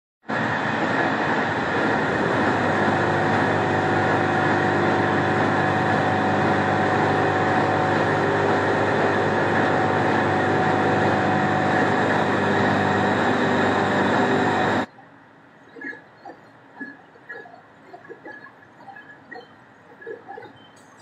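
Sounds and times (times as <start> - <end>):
lathe droning: 0.3 - 14.9.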